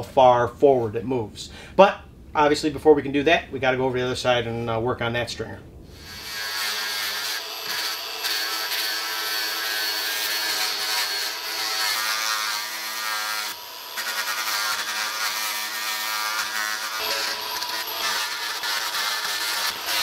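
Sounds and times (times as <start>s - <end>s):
angle grinder grinding wood: 6.0s - 20.0s.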